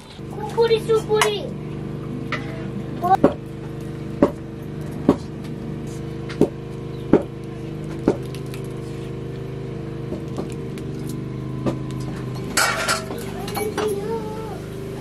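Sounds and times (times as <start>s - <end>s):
sharp knocks: 3.2s - 3.4s, 4.2s - 4.4s.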